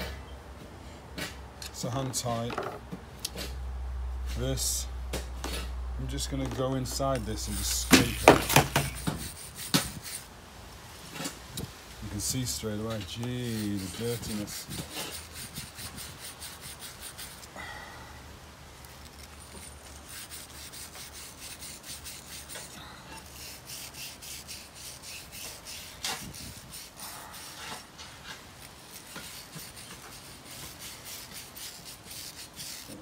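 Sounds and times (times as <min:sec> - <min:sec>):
scraping and rubbing by hand: 0:05.4 - 0:10.3, 0:12.0 - 0:17.5, 0:18.8 - 0:33.0.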